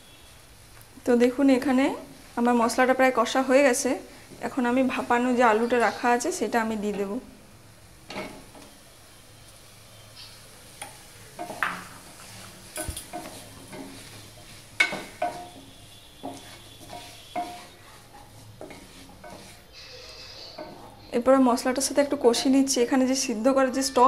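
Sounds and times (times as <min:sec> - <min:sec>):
spatula knocking and scraping pan: 0:03.9 - 0:07.3, 0:08.1 - 0:08.8, 0:10.8 - 0:22.7.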